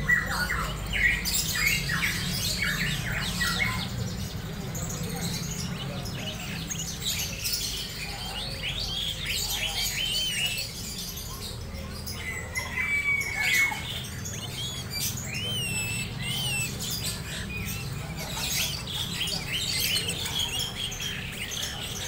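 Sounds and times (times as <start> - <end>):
bird chirping and whistling: 12.6 - 21.8.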